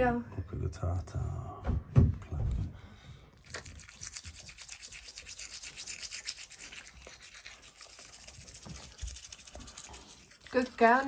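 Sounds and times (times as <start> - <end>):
toothbrush scrubbing teeth: 3.4 - 11.0.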